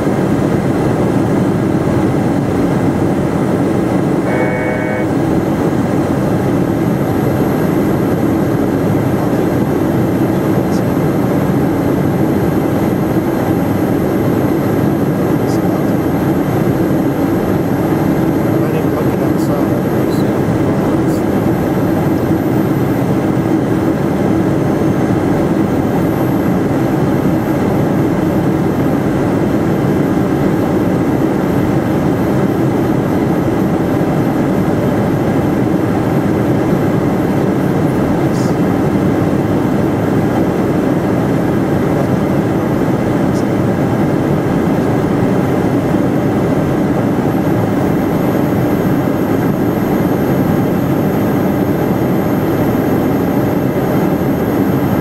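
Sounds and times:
jet engines droning: 0.0s - 55.0s.

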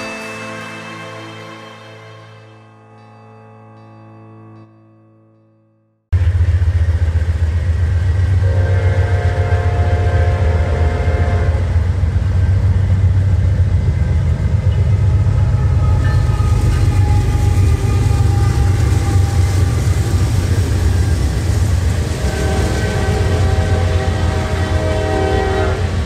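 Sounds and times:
train horn chord: 0.0s - 3.2s, 8.4s - 11.8s, 15.1s - 26.0s
diesel locomotive engine rumble: 6.2s - 26.0s.

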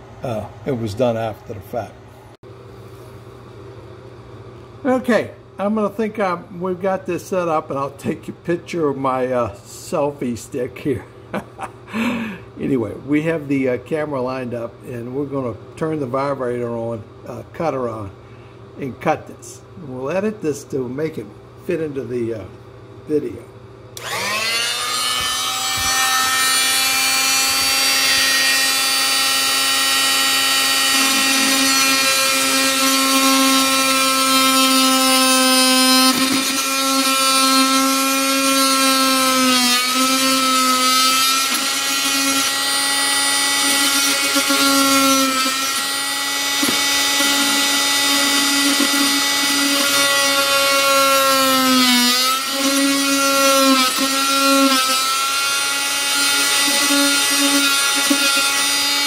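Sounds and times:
oscillating multi-tool buzzing: 24.0s - 59.0s.

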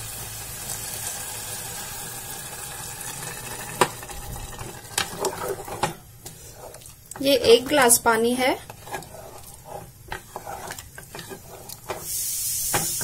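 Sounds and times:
water pouring into pot: 0.0s - 5.4s.

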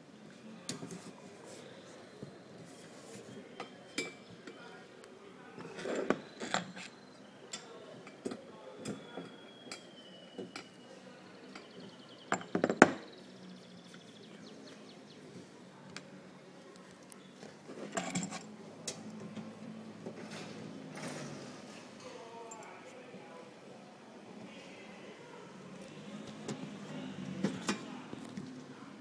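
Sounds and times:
metal parts clinking on wooden table: 17.9s - 18.5s.

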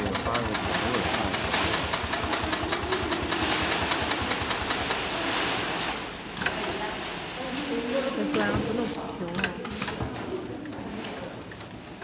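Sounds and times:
sewing machine stitching: 0.0s - 5.6s.

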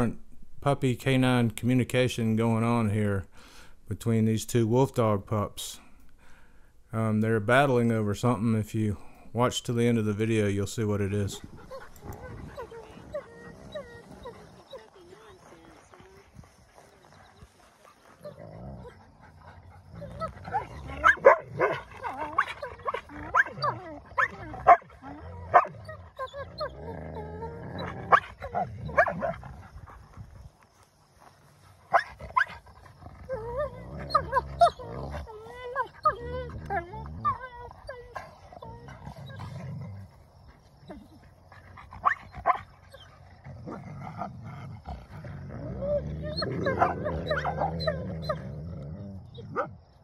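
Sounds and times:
pups growling: 10.2s - 50.0s
pups whining and yelping: 11.3s - 15.7s, 16.7s - 30.0s, 31.9s - 44.3s, 45.0s - 49.8s.

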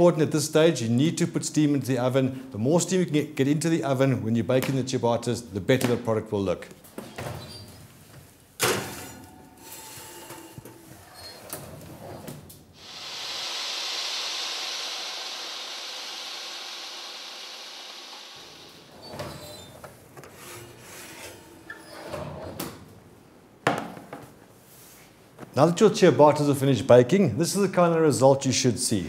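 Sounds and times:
steam hissing: 9.6s - 11.4s, 12.7s - 21.3s.

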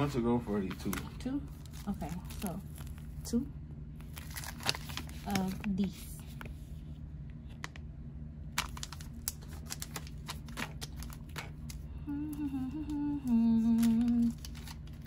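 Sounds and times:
low background hum: 0.0s - 15.0s
person humming a tune: 12.0s - 14.4s.

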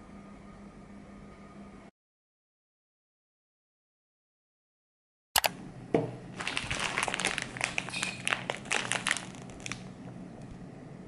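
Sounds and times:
plastic bag crinkling: 6.4s - 9.9s.

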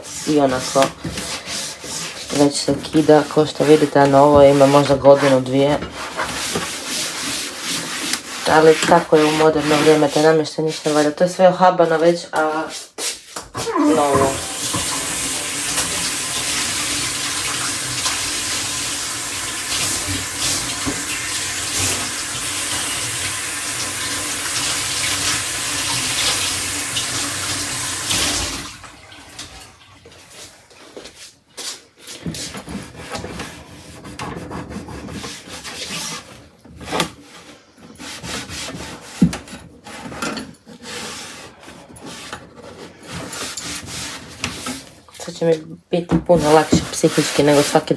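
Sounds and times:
handling and rubbing sounds: 0.0s - 14.4s, 30.1s - 47.9s
tap water running into sink: 13.8s - 30.2s.

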